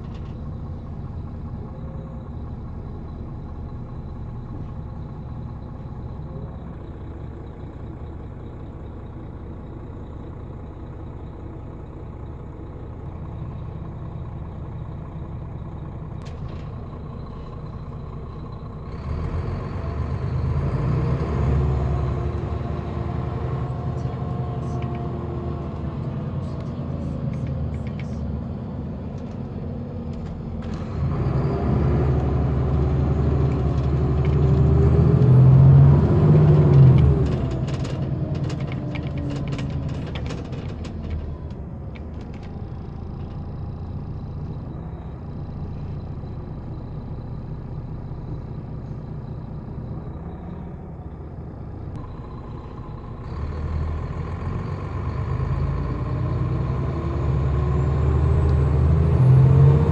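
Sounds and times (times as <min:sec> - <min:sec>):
coach diesel engine: 0:00.0 - 0:59.9
clicks and rattles: 0:36.7 - 0:42.6.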